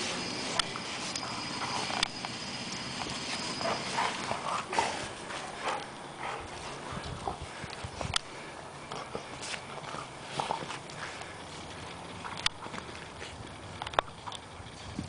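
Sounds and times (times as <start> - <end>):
dog vocal noises: 0.0 - 7.7
dogs scuffling: 0.0 - 8.1.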